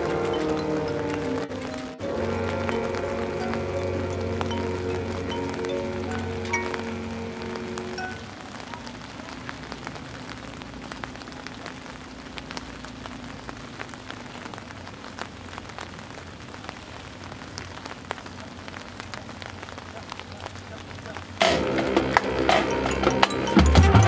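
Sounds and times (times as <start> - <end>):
marching band held chord: 0.0 - 9.4, 21.4 - 24.0
rain on umbrellas: 0.0 - 24.0.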